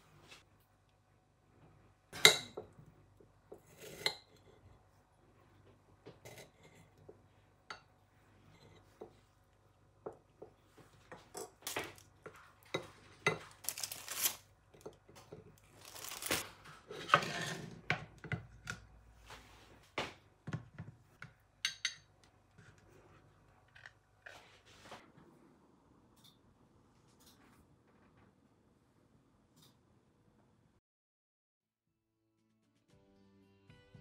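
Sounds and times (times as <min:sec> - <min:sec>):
packet rustling: 0:13.5 - 0:14.4, 0:15.7 - 0:16.4.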